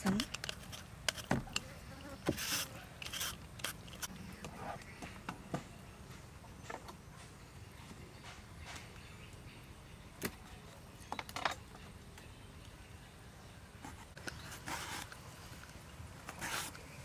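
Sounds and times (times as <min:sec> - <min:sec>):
vegetable peeler scraping: 0:00.0 - 0:04.1.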